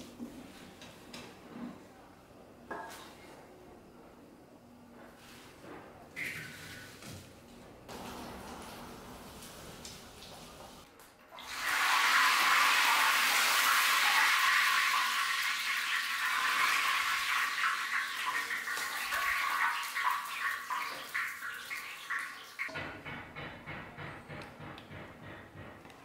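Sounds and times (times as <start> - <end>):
oil sizzling in a wok: 11.4 - 22.7.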